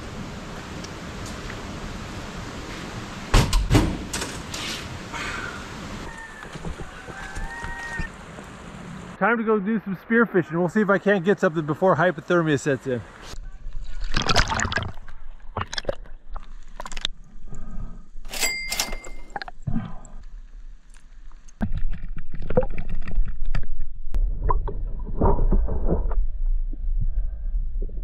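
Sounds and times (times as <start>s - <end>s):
water sloshing and gurgling: 13.6s - 17.8s
low underwater rumble: 21.6s - 28.0s.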